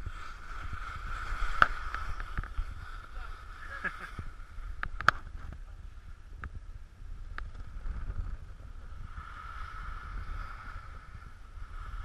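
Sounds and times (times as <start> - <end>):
skis hissing on snow: 0.0 - 4.7, 8.9 - 12.0
wind rumbling on microphone: 0.0 - 12.0.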